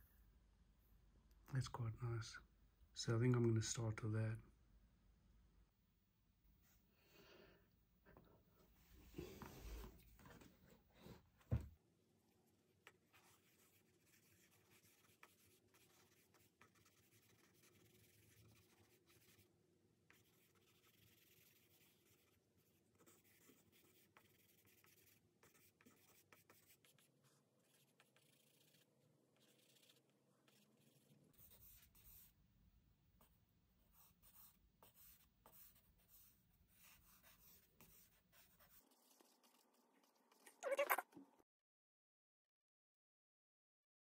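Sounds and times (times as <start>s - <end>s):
charcoal scratching on paper: 12.8s - 32.4s, 33.2s - 41.0s.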